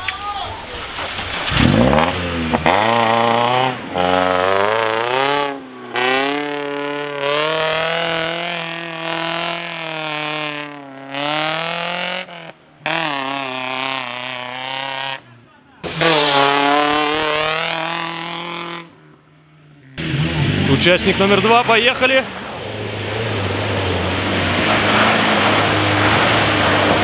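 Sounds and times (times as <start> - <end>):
car engine revving: 1.0 - 27.0
mud and water splashing: 21.2 - 27.0.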